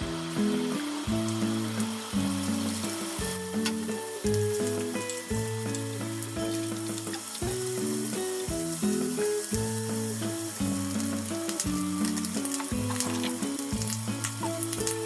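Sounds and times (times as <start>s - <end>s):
background music: 0.0s - 15.0s
bacon sizzling in frying pan: 0.0s - 15.0s.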